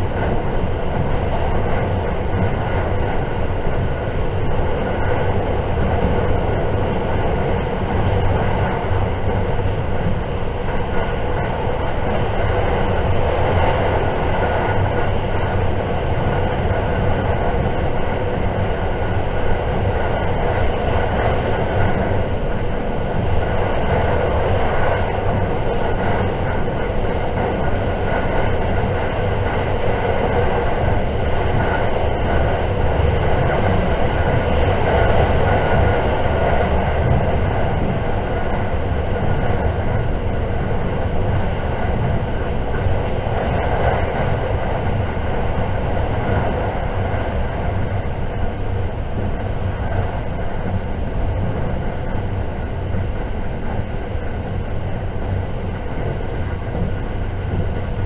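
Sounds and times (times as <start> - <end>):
train wheels rumbling on rail: 0.0 - 58.0.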